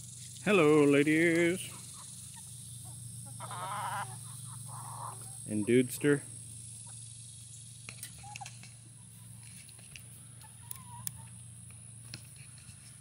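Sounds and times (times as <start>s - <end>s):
high-pitched insect drone: 0.0s - 12.9s.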